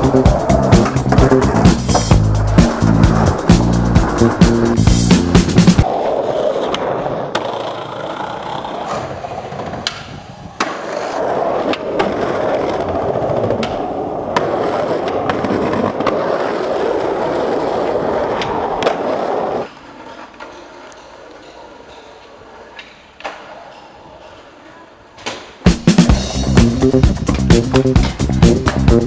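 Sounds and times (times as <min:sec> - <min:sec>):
skateboard wheels rolling on asphalt: 0:00.0 - 0:21.4
skateboard clacks: 0:00.0 - 0:23.5, 0:26.6 - 0:29.0.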